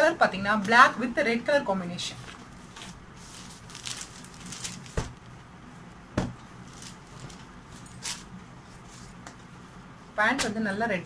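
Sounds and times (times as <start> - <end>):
fabric rustling and swishing: 2.2 - 5.9.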